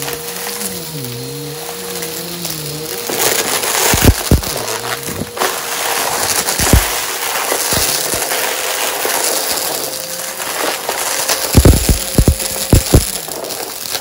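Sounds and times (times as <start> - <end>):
vacuum cleaner running: 0.0 - 14.0
debris knocking through vacuum: 2.8 - 14.0.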